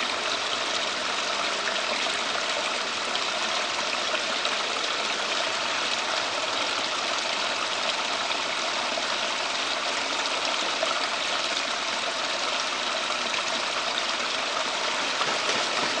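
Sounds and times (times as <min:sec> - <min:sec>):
water running and splashing: 0:00.0 - 0:16.0.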